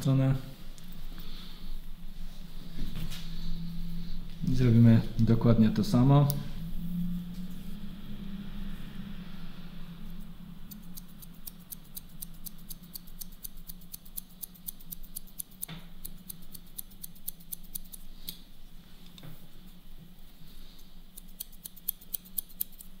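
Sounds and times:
low steady hum: 0.0 - 23.0
scissors snipping hair: 10.7 - 18.4, 21.1 - 23.0.

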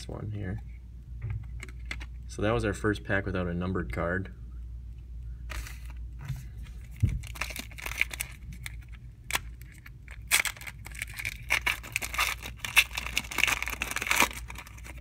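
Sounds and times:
wrapper crinkling and tearing: 6.8 - 15.0.

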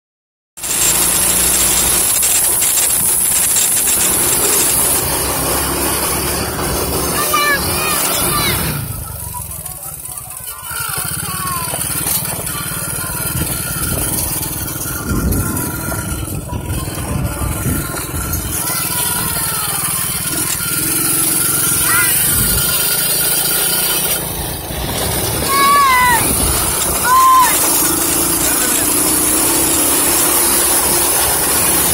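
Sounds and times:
vehicle engine humming: 0.6 - 31.9
wind and road noise: 10.8 - 19.5, 21.4 - 31.9
wind rush over microphone: 13.3 - 18.5, 26.2 - 27.0.

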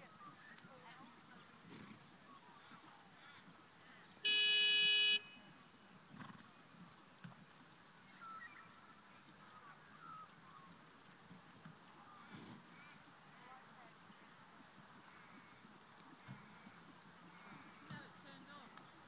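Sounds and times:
horn blast: 4.3 - 5.4
faint bird chirps: 8.0 - 10.8.

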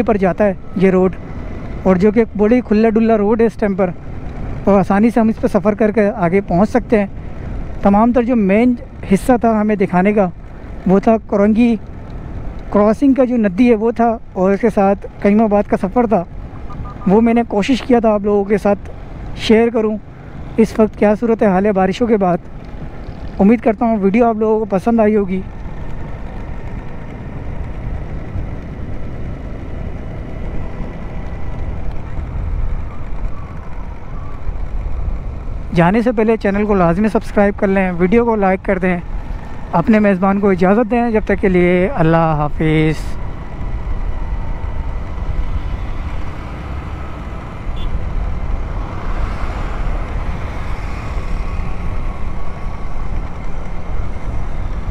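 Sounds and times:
motorcycle engine rumbling: 0.0 - 54.9
vehicle passing close by: 43.3 - 54.9.

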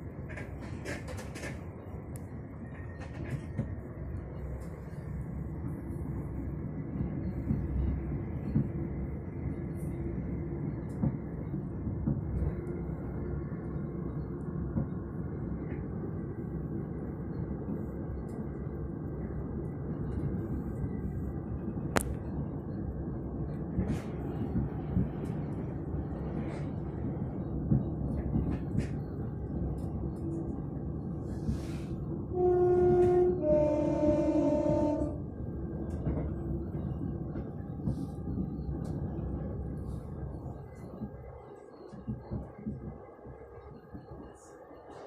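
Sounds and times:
train wheels rumbling on rail: 0.0 - 45.0
two-tone train horn: 32.3 - 35.3.

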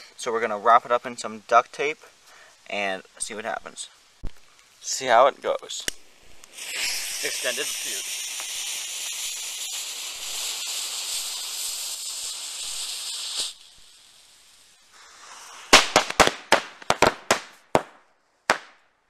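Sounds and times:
fuse hissing: 1.8 - 16.1
firecrackers banging: 6.3 - 14.2, 14.9 - 18.8.

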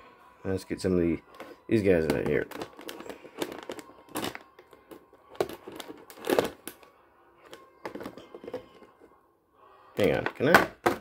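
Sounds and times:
plastic packaging crinkling: 1.2 - 8.9.

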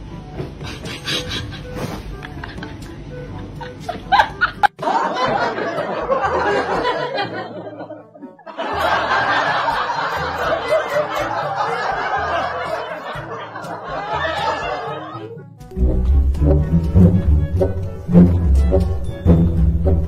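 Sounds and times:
laughter: 0.7 - 3.0, 3.6 - 15.4
music with repeating bass line: 15.7 - 20.0.

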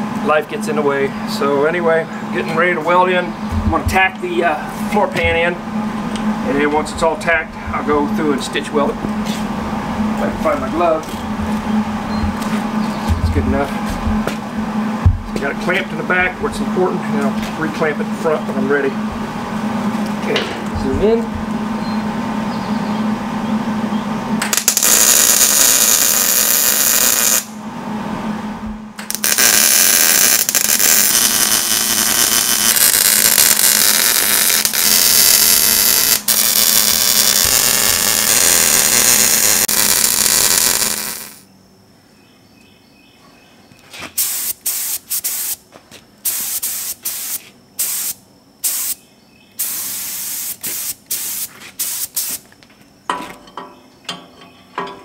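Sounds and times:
welder arc sizzling: 24.4 - 27.6, 29.0 - 41.4, 44.2 - 45.6, 46.2 - 49.0, 49.6 - 52.5
paint spray gun hissing: 44.2 - 45.6, 46.2 - 49.0, 49.6 - 52.5.

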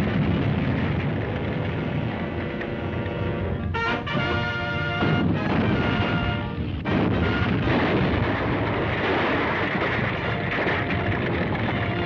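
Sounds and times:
rubble crashing rumble: 0.0 - 3.7, 5.0 - 12.0
orchestral brass chords: 1.9 - 7.9.

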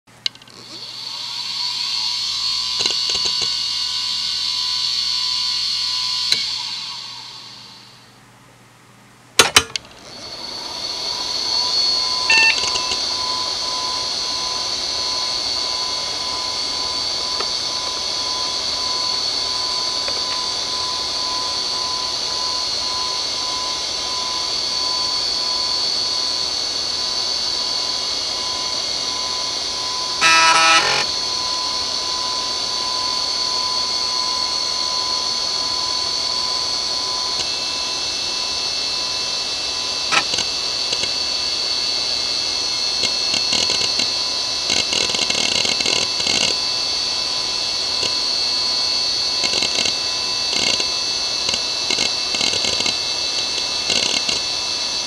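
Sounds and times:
hard drive whine: 0.1 - 55.0
short beep: 12.3 - 13.0
hard drive clicks: 40.1 - 41.2, 44.7 - 46.6.

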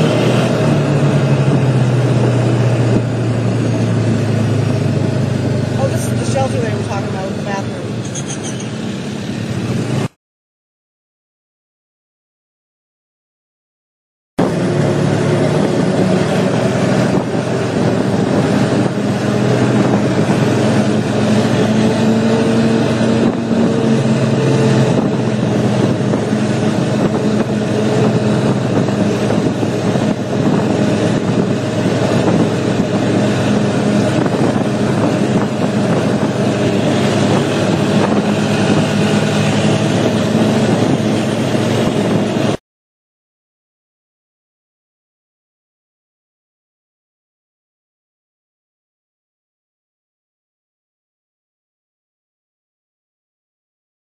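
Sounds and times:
atv engine running: 0.0 - 10.1, 14.4 - 42.6.

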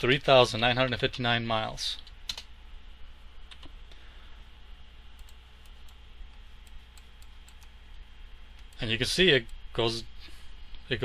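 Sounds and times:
low electrical hum and hiss: 0.0 - 11.0
keyboard and mouse clicks: 3.5 - 3.8.

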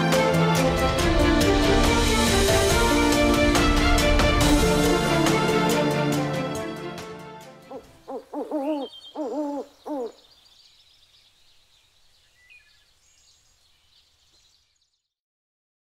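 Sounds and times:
owl hooting: 7.7 - 10.3.

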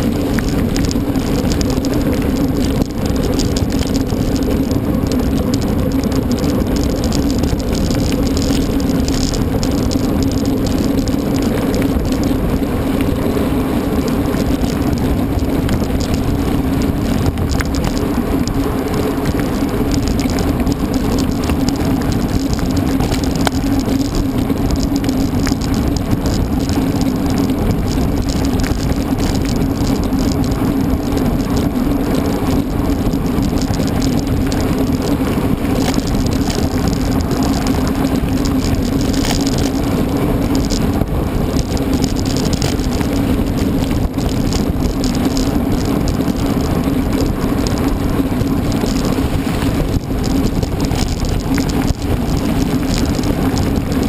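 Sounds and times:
bike tyres rolling rumble: 0.0 - 54.0.

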